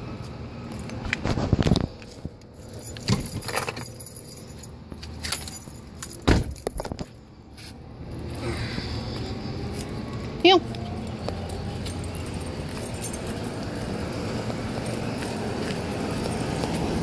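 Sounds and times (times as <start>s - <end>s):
dog vest hardware jingling: 2.5s - 7.1s, 10.8s - 17.0s
heavy thump: 6.2s - 6.8s.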